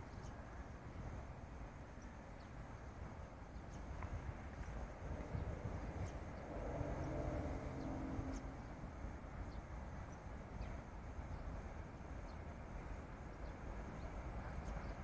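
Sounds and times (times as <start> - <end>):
small birds chirping: 0.0 - 0.5, 3.4 - 8.8
faint hum: 0.0 - 15.0
steady low rumble: 2.6 - 15.0.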